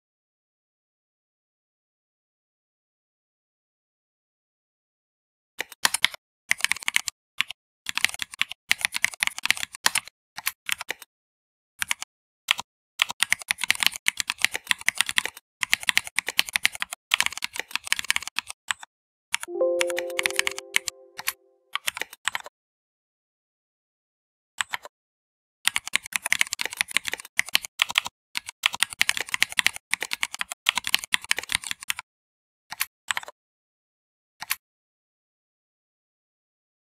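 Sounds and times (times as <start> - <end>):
typing on computer keyboard: 5.6 - 11.1, 11.8 - 22.5, 25.7 - 32.0
short ringing tone: 19.5 - 21.4.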